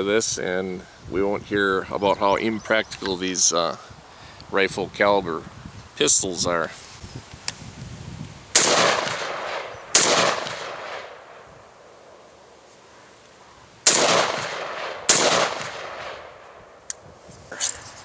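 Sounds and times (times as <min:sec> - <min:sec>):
gunshots with long echo: 0:08.5 - 0:11.5, 0:13.8 - 0:16.8.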